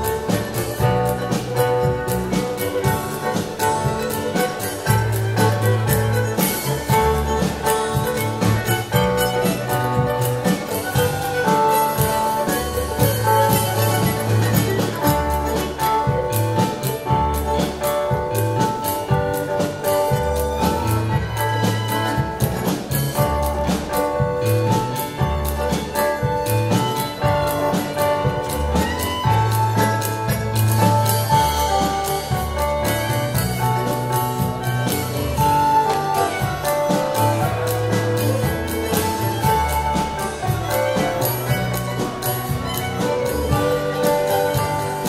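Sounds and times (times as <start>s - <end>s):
live dance band playing: 0.0s - 45.0s.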